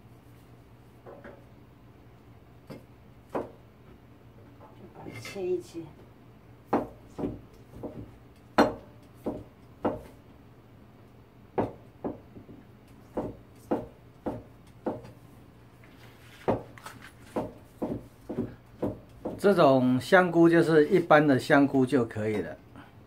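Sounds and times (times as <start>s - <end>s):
knife knocking on cutting board: 6.7s - 10.2s, 16.4s - 19.4s.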